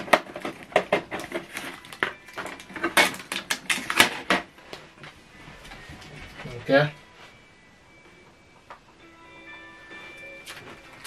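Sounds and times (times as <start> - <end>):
packing material crinkling: 0.0 - 4.3.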